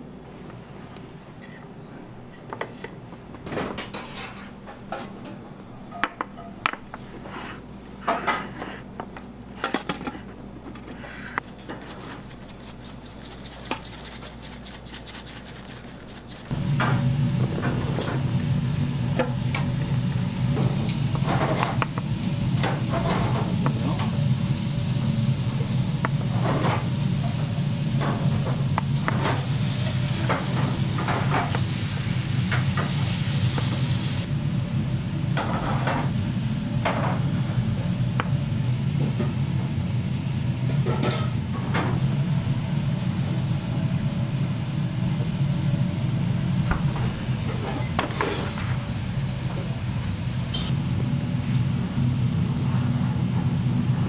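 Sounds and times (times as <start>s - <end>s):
steady low hum: 4.5s - 33.4s.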